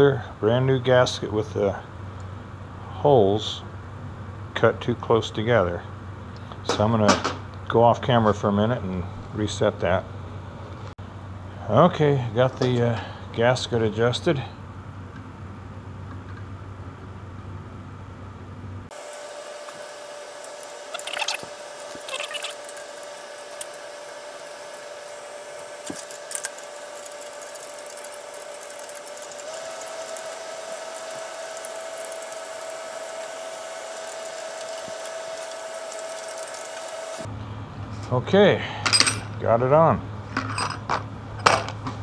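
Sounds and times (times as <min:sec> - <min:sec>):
fan motor whirring hiss: 0:00.0 - 0:40.4.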